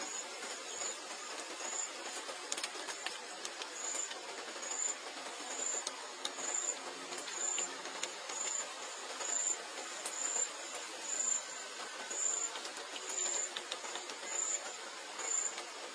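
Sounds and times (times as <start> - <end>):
steady hiss: 0.0 - 15.9
high insect-like chirp: 3.8 - 15.6.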